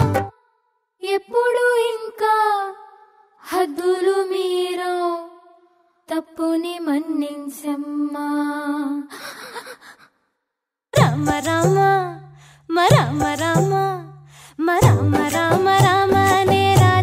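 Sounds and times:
woman singing slow melody: 11.0 - 17.0.

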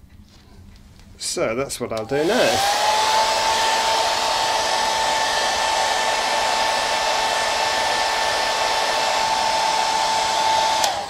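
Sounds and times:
hairdryer blowing with high whine: 2.0 - 11.0
hairdryer switch click: 7.2 - 11.0.

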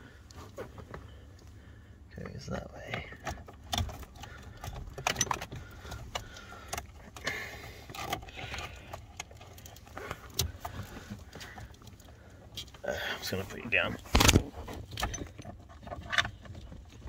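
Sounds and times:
plastic plugs clicking and rattling: 2.8 - 12.8.

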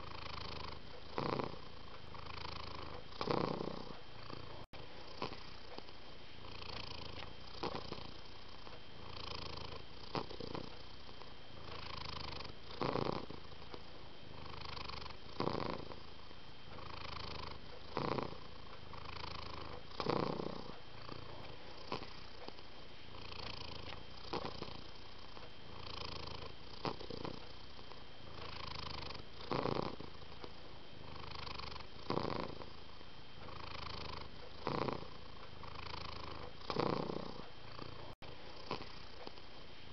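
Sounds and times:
cat purring: 0.0 - 39.7.

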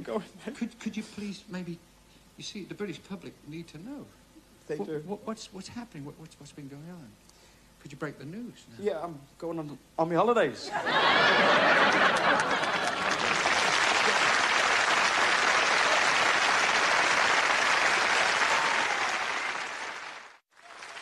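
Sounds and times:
audience applauding: 11.0 - 21.0.

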